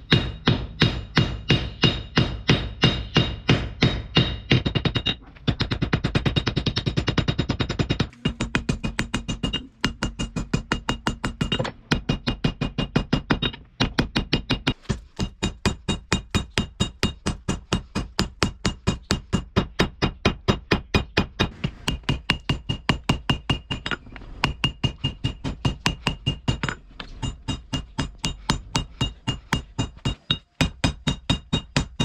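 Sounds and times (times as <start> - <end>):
hammer ringing on anvil: 0.1 - 5.2.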